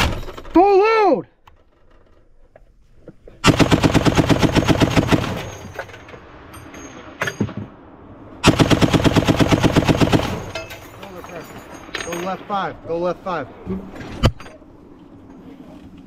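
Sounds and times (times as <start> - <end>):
heavy machine gun bursts: 3.4 - 6.0, 8.4 - 10.9.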